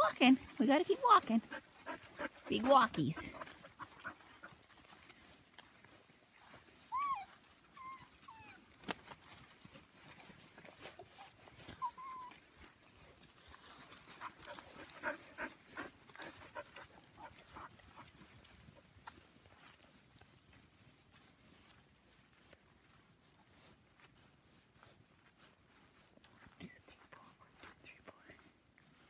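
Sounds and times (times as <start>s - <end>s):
steps through grass and leaves: 0.2s - 29.0s
puppies whimpering and yipping: 6.7s - 8.7s, 11.1s - 12.4s.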